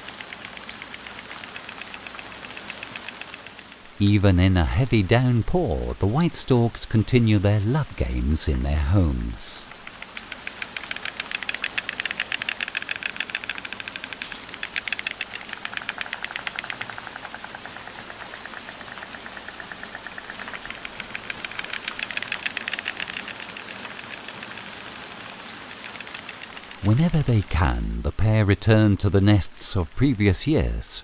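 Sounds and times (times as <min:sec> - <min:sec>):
storks bill-clattering: 0:00.0 - 0:04.2, 0:07.4 - 0:27.4.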